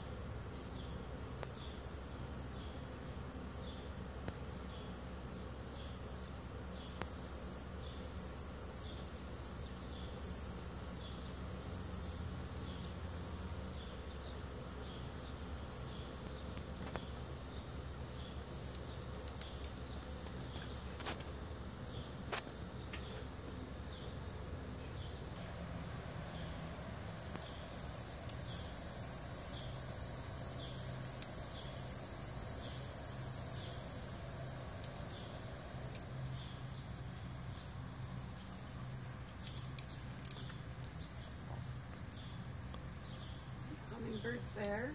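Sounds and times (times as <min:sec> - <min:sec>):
insect chorus drone: 0:00.0 - 0:44.9
small clicks: 0:34.8 - 0:35.1, 0:39.3 - 0:40.6.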